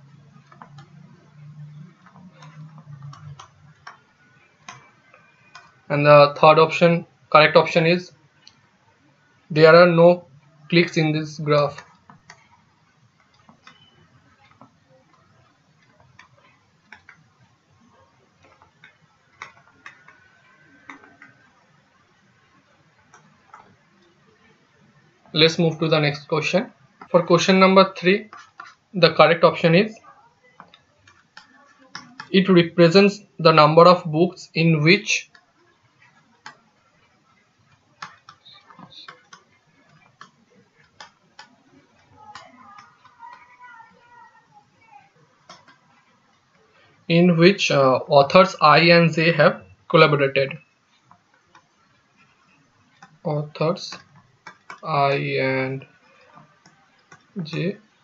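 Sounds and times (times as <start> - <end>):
low hiss: 0.0 - 58.0
stylus tapping on tablet: 0.2 - 5.9, 11.8 - 21.6, 22.6 - 23.9, 35.2 - 44.3, 45.4 - 46.6, 50.6 - 54.9.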